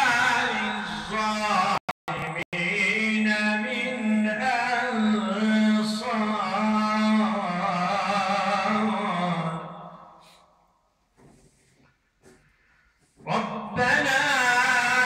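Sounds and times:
man chanting melodically: 0:00.0 - 0:10.2, 0:13.2 - 0:15.0.

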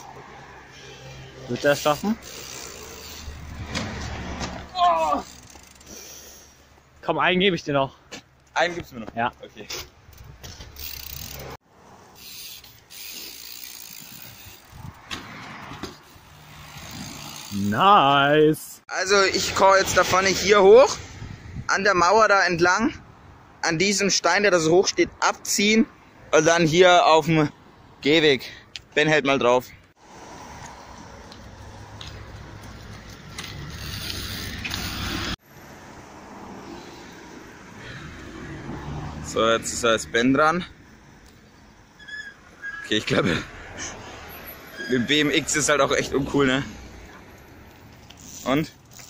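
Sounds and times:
bike tyre noise: 0:00.0 - 0:06.9, 0:09.5 - 0:18.2, 0:30.0 - 0:39.1, 0:41.3 - 0:49.0
bike freewheel ticking: 0:01.8 - 0:03.4, 0:05.0 - 0:06.0, 0:10.8 - 0:11.5, 0:12.2 - 0:14.8, 0:16.0 - 0:17.7, 0:33.7 - 0:35.1.

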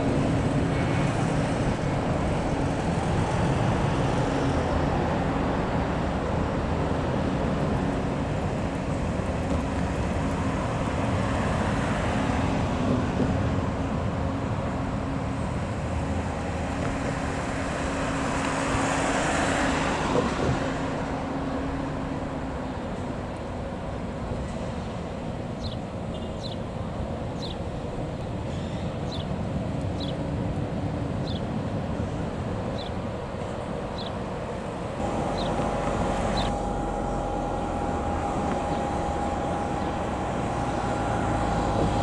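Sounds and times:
jet engines roaring: 0:34.3 - 0:42.0
low hum: 0:34.9 - 0:42.0.

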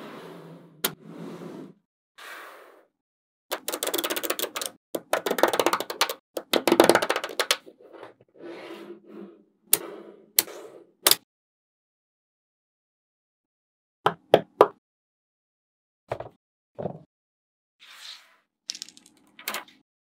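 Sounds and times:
magnet balls clicking and rattling: 0:18.7 - 0:19.6.

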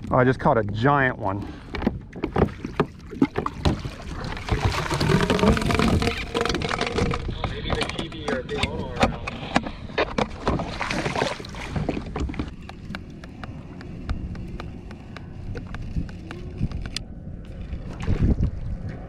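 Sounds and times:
water slapping a kayak: 0:00.4 - 0:19.0
water splashing: 0:02.1 - 0:08.0, 0:10.3 - 0:13.8
wind on microphone: 0:10.4 - 0:19.0.

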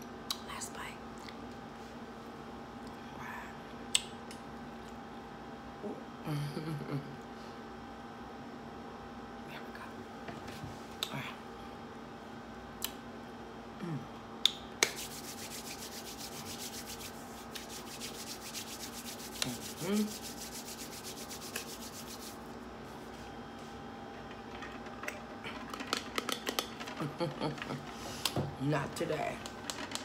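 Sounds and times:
rapid rubbing close to microphone: 0:14.9 - 0:22.4.

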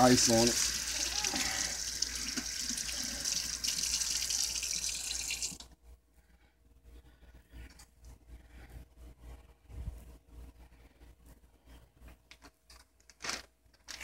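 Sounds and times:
faucet running into steel sink: 0:00.0 - 0:05.6.

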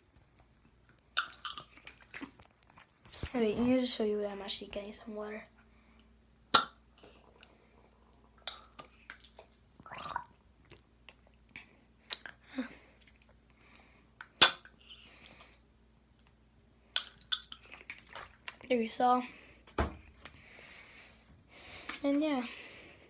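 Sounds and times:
wet mouth and swallowing noises: 0:00.2 - 0:03.3, 0:06.5 - 0:12.4, 0:16.2 - 0:18.6
water squirting into mouth: 0:08.4 - 0:10.3.

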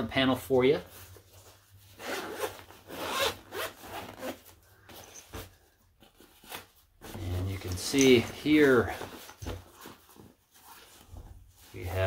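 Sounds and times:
backpack zipper unzipping: 0:02.0 - 0:04.4.

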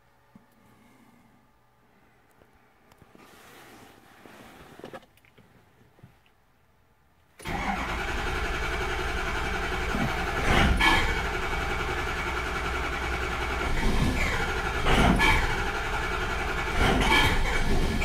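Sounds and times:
diesel engine cranking: 0:07.4 - 0:18.0.

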